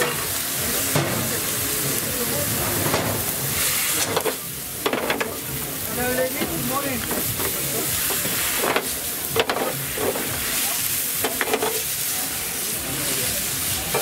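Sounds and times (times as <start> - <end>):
food sizzling in a wok: 0.0 - 14.0
spatula scraping and knocking pan: 6.4 - 10.4.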